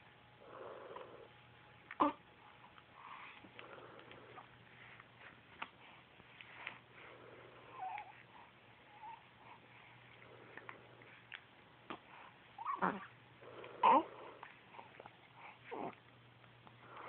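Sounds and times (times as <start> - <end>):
baby cooing: 2.0 - 2.2, 7.7 - 8.2, 12.6 - 13.1, 13.8 - 14.2, 15.7 - 16.0.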